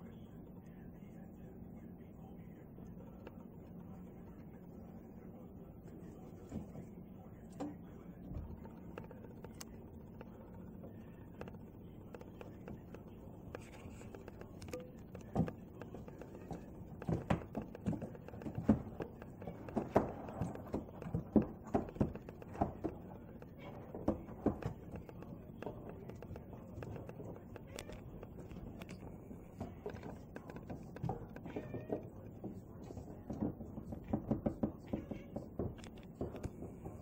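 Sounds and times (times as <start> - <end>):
crow tapping on skylight glass: 8.6 - 37.0.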